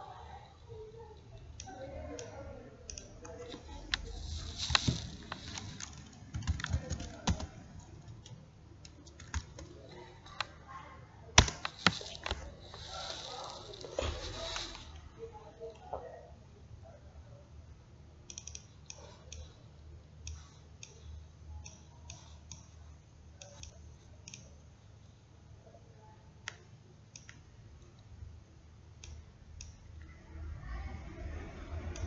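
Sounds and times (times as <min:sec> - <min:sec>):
faint low hum: 0:00.0 - 0:32.0
computer mouse clicking: 0:01.0 - 0:10.5, 0:11.4 - 0:15.1, 0:18.3 - 0:19.6, 0:20.2 - 0:22.8, 0:23.4 - 0:24.5, 0:26.4 - 0:27.4.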